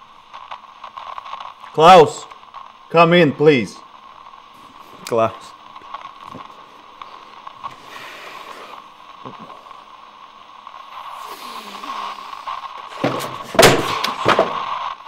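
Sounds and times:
radio static hiss: 0.0 - 15.0
sharp bangs or cracks: 12.8 - 15.0.

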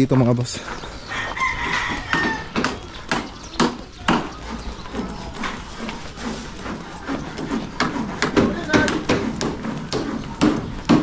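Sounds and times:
sharp knocks: 2.1 - 5.1, 7.4 - 11.0.

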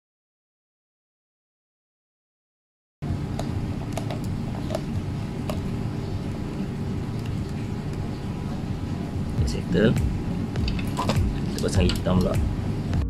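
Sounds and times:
motor humming: 3.0 - 13.0.

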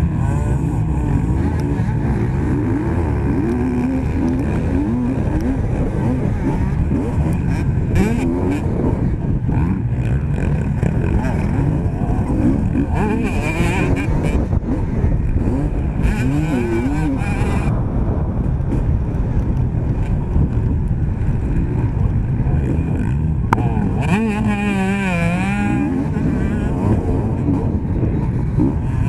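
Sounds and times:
dirt bike engine revving: 0.0 - 29.0
low rumble: 0.0 - 29.0
other dirt bikes racing: 0.0 - 29.0.

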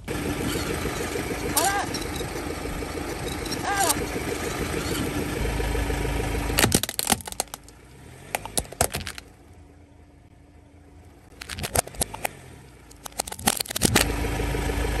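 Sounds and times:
car engine rumbling: 0.0 - 15.0
plastic toy cracking and snapping: 6.6 - 9.3, 11.4 - 14.1.

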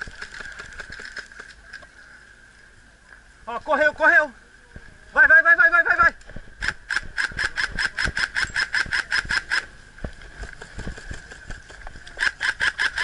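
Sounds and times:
airsoft rifle rapid fire: 6.6 - 9.7, 12.2 - 13.0.

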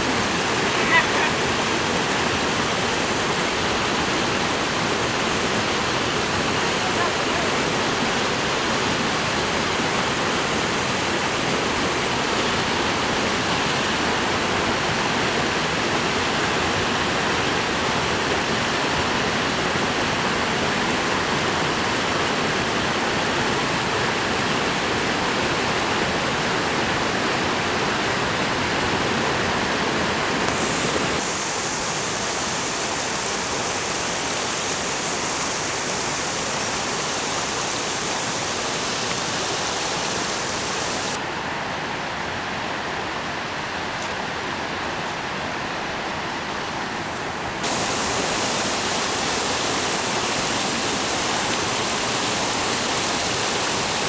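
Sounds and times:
river rushing over boulders: 0.0 - 54.0.

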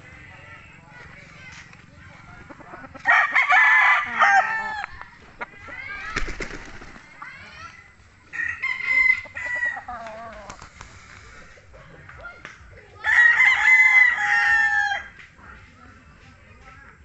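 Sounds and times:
chickens clucking: 0.0 - 3.2, 4.1 - 7.4, 8.0 - 12.8
roosters crowing: 2.5 - 6.2, 8.2 - 10.6, 13.0 - 15.2.

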